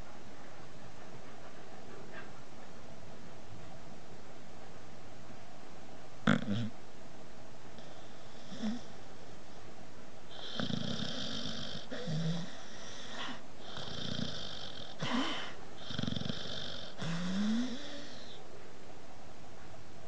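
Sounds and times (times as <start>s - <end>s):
dog snoring: 6.2s - 6.8s, 7.8s - 9.0s, 10.3s - 18.4s.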